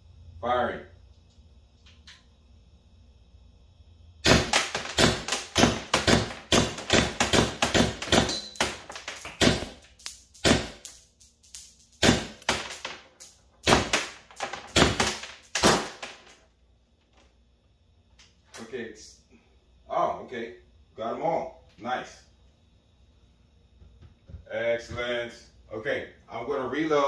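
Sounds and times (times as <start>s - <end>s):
paintball marker firing: 4.2s - 11.0s, 12.0s - 16.2s.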